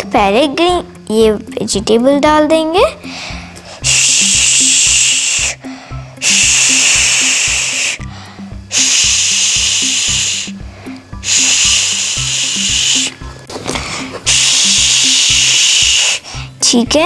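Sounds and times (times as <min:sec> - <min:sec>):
background music with bass line: 0:00.0 - 0:17.0
toy steam hissing: 0:03.7 - 0:08.1, 0:08.7 - 0:13.2, 0:14.3 - 0:16.6.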